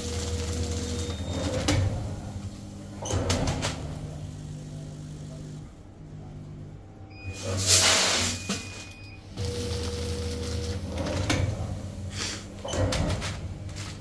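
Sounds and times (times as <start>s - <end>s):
machine motor hum: 9.3s - 14.0s.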